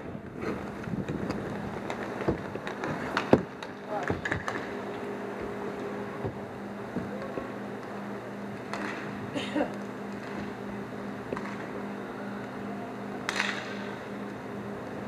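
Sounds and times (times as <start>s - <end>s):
rink background noise: 0.0s - 15.0s
steady low hum: 0.0s - 15.0s
hockey sticks clacking on puck: 13.3s - 13.9s.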